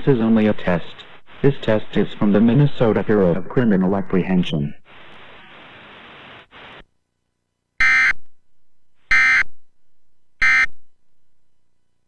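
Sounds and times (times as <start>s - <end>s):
faint hiss: 0.0s - 6.9s.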